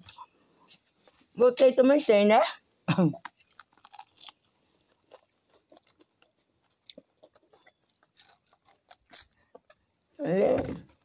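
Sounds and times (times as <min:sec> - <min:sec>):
chewing crispy food: 0:03.0 - 0:10.2.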